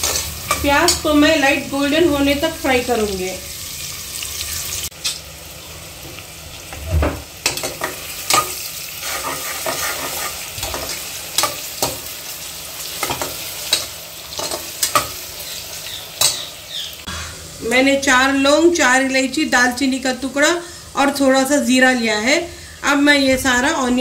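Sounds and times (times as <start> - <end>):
onions sizzling in hot oil: 0.0 - 24.0.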